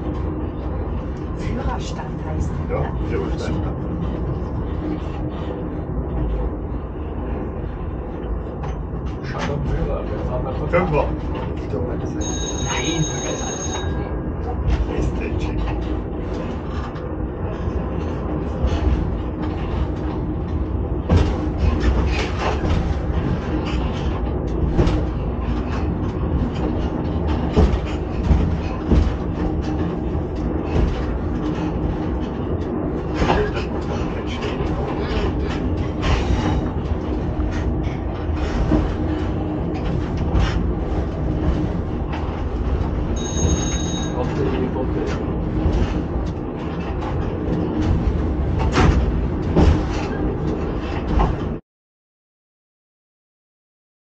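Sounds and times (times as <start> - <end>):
train wheels rumbling on rail: 0.0 - 51.6
knocks and rattles: 8.1 - 51.6
high steady tone: 12.2 - 14.1, 43.2 - 44.2.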